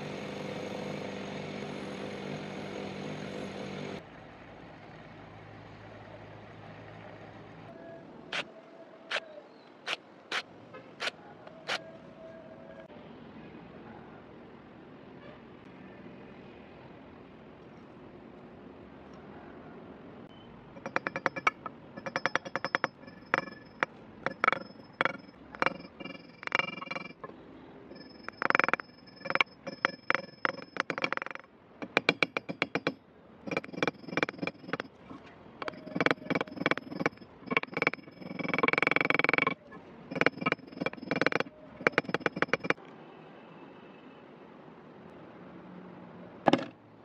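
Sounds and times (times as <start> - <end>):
small hammer tapping metal: 20.8 - 27.3, 27.9 - 34.9, 35.6 - 42.8.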